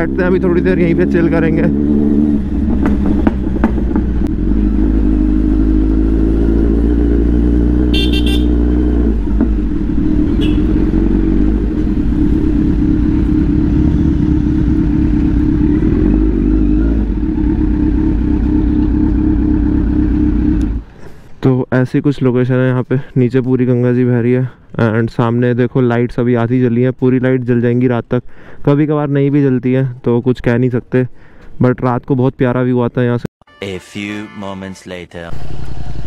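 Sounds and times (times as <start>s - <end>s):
motorcycle engine running at low revs: 0.0s - 20.8s.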